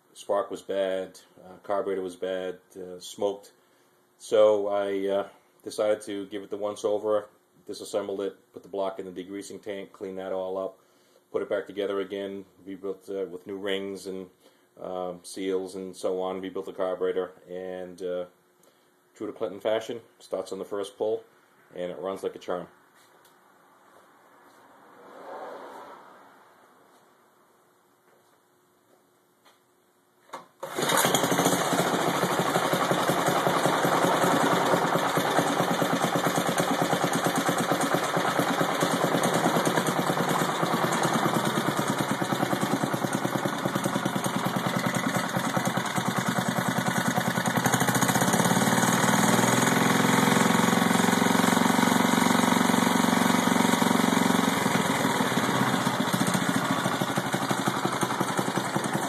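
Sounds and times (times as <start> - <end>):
recoil starter pull: 30.4 - 59.0
small engine running: 30.6 - 59.0.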